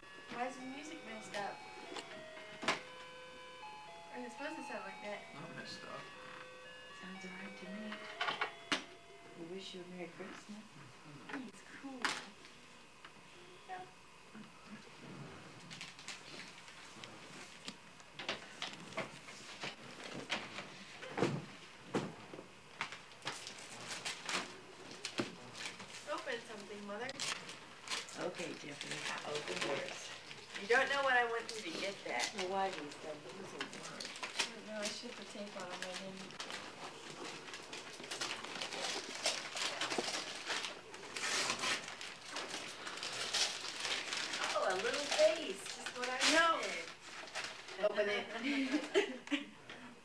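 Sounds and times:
wrapping paper crinkling and tearing: 0:15.7 - 0:17.8, 0:22.8 - 0:47.9.

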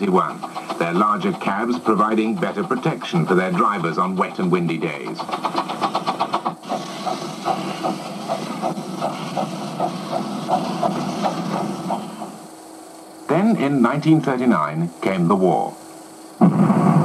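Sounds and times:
steam locomotive chuffing: 0:00.0 - 0:12.5
steady hiss: 0:00.0 - 0:17.0.

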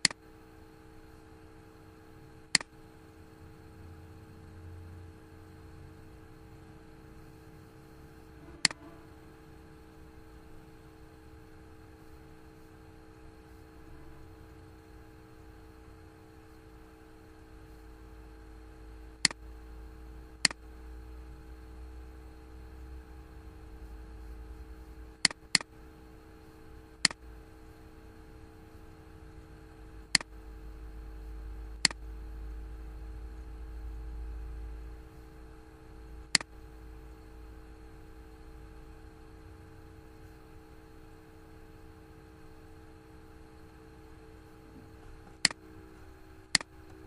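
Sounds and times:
computer mouse clicking: 0:00.0 - 0:00.2, 0:45.2 - 0:45.6, 0:46.5 - 0:47.0
low electrical hum: 0:00.0 - 0:47.0.

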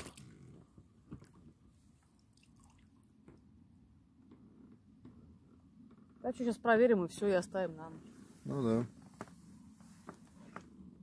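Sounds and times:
faint water drips: 0:00.0 - 0:03.6.

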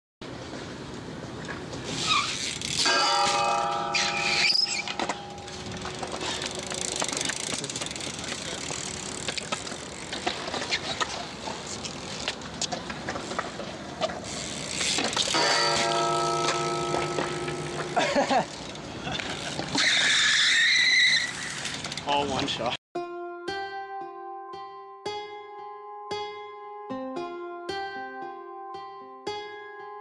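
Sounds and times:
bike clicks and rattles: 0:00.9 - 0:22.7
bike tyres hissing on concrete: 0:01.8 - 0:02.9, 0:14.1 - 0:15.7
ringing metallic tones: 0:02.8 - 0:06.8, 0:15.3 - 0:18.0
high squeal: 0:03.9 - 0:05.0, 0:19.8 - 0:21.6.

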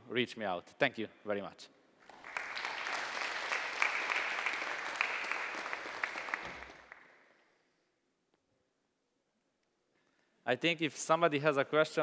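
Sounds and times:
audience applauding: 0:02.0 - 0:07.2.

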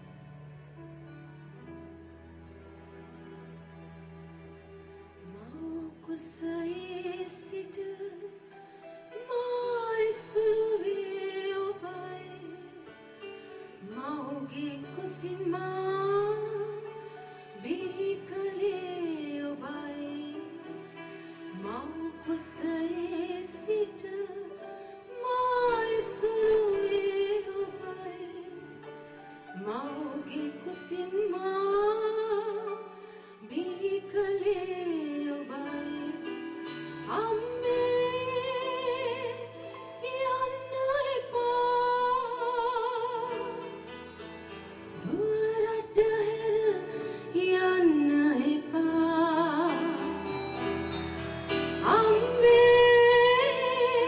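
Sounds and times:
instrumental accompaniment: 0:00.0 - 0:54.0
woman singing slow song: 0:45.0 - 0:50.2, 0:51.8 - 0:54.0.

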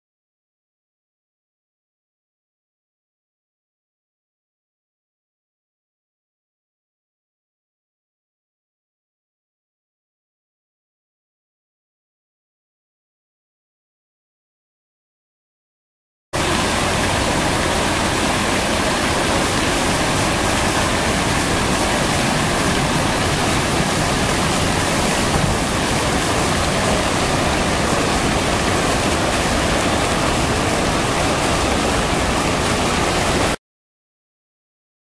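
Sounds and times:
fountain water spraying and splashing: 0:16.4 - 0:33.6.

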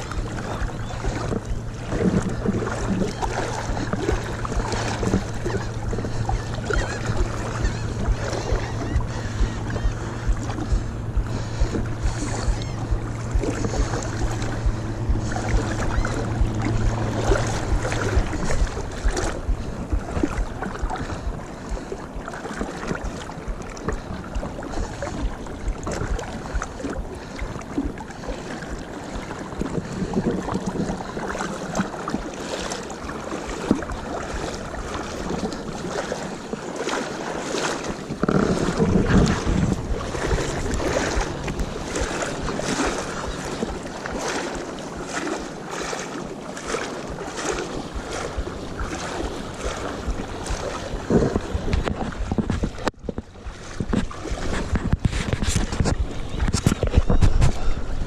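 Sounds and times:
wind on microphone: 0:00.0 - 0:32.4, 0:37.6 - 0:45.3, 0:46.0 - 0:58.0
steady low hum: 0:00.0 - 0:36.6, 0:37.8 - 0:58.0
seawater lapping and splashing: 0:00.0 - 0:58.0.

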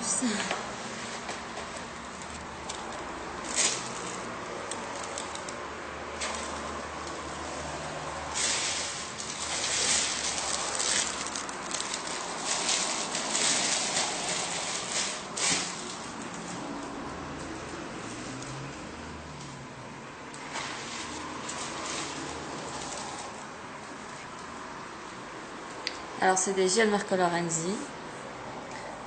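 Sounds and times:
paper wrapping rustling: 0:00.4 - 0:05.6, 0:08.3 - 0:17.8, 0:20.4 - 0:23.5.

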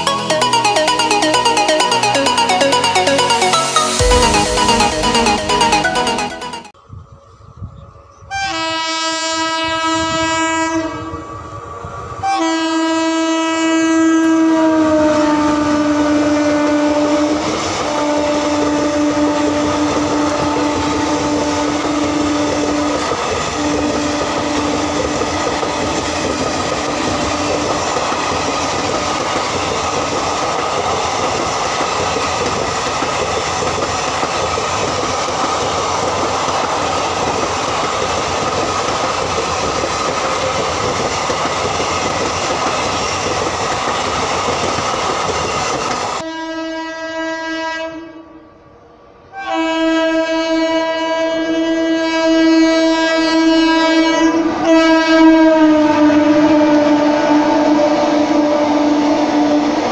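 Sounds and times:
locomotive horn blasts: 0:08.3 - 0:11.2, 0:12.2 - 0:22.9, 0:23.5 - 0:24.8, 0:46.2 - 0:48.4, 0:49.3 - 0:59.4
train wheels rumbling on rail: 0:08.4 - 0:46.3.

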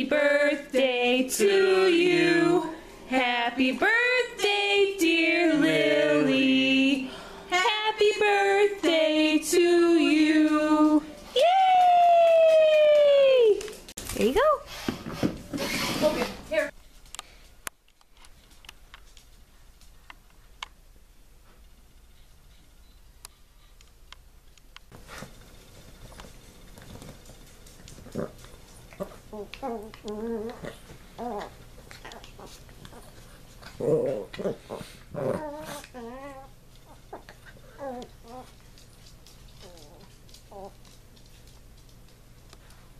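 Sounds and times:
small dogs growling and whimpering: 0:28.0 - 0:38.6, 0:39.6 - 0:40.8
faint clicks and ticks: 0:38.0 - 0:42.9.

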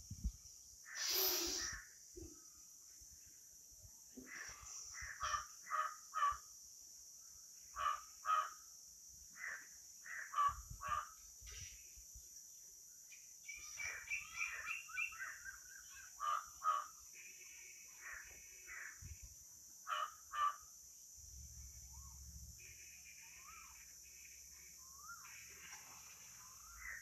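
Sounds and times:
steady high hiss: 0:00.0 - 0:19.9, 0:20.5 - 0:27.0
crows cawing: 0:04.3 - 0:06.4, 0:07.8 - 0:08.6, 0:09.4 - 0:11.2, 0:16.1 - 0:17.0, 0:19.9 - 0:20.6.

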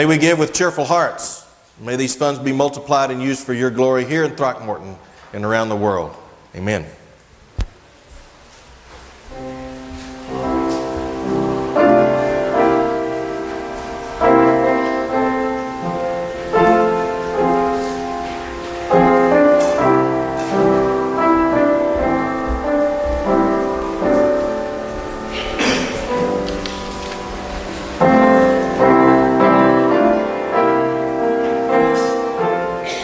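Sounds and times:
slow piano chords: 0:09.2 - 0:33.0.

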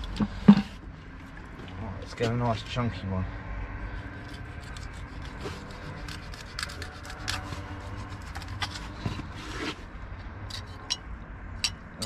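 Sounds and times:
knife sawing through fish: 0:04.1 - 0:09.8.

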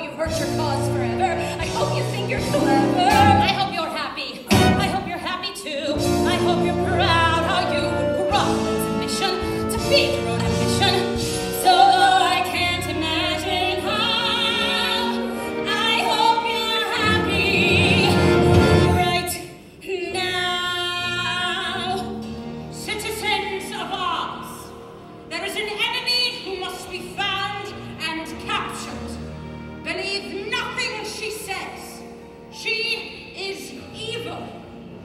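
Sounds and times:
pit orchestra playing: 0:00.0 - 0:35.0
women singing with vibrato: 0:00.1 - 0:22.1.

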